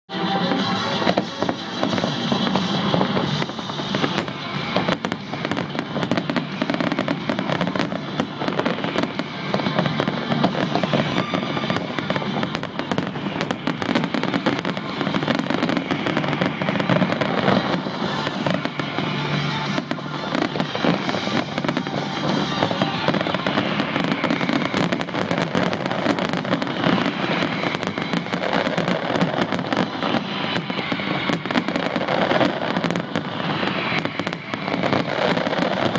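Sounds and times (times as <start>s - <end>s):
fireworks bursting and crackling: 0.1s - 35.9s.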